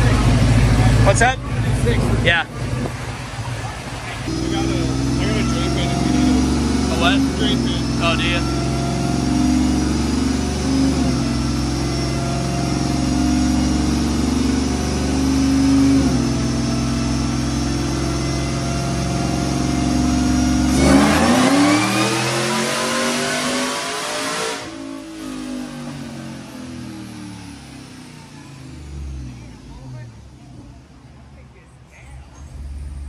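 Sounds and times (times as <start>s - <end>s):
supercharged engine on dyno: 0.0s - 31.2s.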